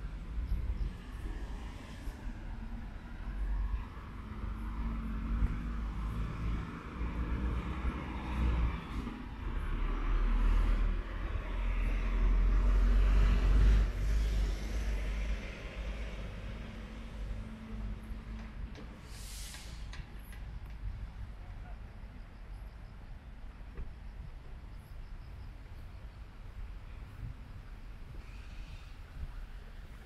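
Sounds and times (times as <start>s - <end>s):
vehicle passing: 0.0s - 18.4s
street traffic rumble: 0.0s - 30.0s.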